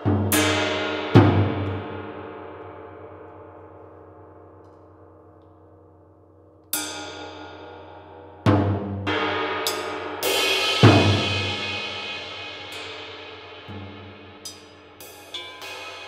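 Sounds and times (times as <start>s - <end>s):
bright metallic strike: 10.9s - 16.0s.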